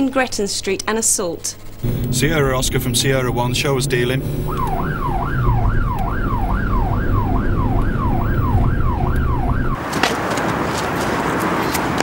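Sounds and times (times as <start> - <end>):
car engine hum: 1.7 - 9.8
police siren wailing: 1.8 - 9.8.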